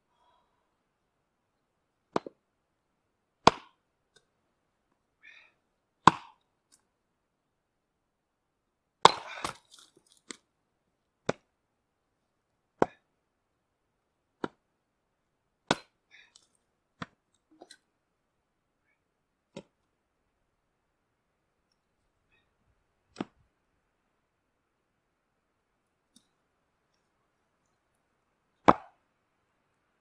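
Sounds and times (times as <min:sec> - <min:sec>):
axe splitting firewood: 0:02.1 - 0:02.4, 0:03.4 - 0:03.8, 0:06.0 - 0:06.4, 0:09.0 - 0:10.4, 0:14.4 - 0:14.6, 0:15.6 - 0:16.4, 0:19.5 - 0:19.8, 0:28.6 - 0:29.0.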